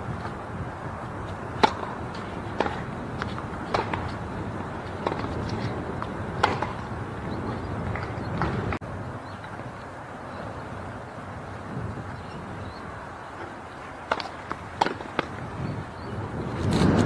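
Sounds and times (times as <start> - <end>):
wind on microphone: 0.0 - 17.0
tennis ball hitting rackets: 1.2 - 8.8, 13.3 - 15.5.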